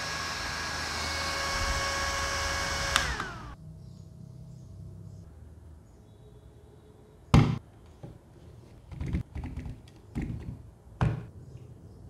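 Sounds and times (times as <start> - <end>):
objects knocking and clunking: 8.8 - 11.3.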